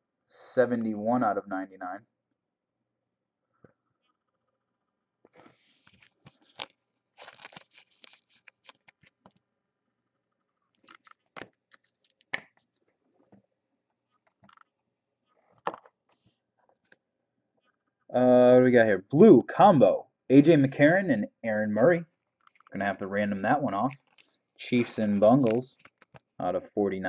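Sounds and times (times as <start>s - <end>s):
cards rustling and clicking: 5.3s - 9.4s, 10.7s - 13.4s, 22.4s - 22.8s, 23.8s - 26.4s.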